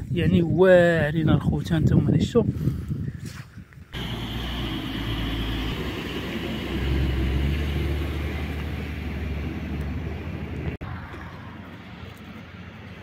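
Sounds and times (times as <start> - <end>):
truck diesel engine rumble: 4.0 - 13.0.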